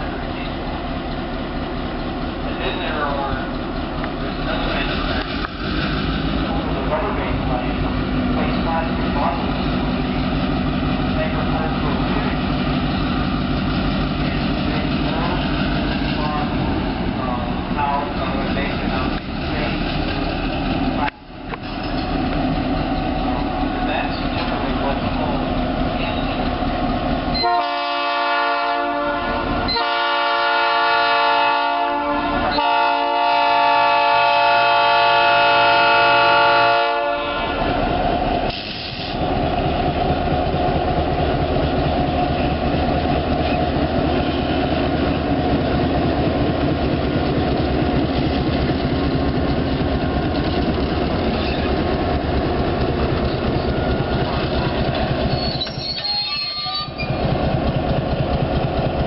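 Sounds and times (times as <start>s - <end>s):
train wheels rolling on rails: 0.0s - 28.0s, 35.0s - 59.0s
locomotive air horn blasts: 27.4s - 37.7s
diesel engine running: 37.6s - 55.6s, 57.0s - 59.0s.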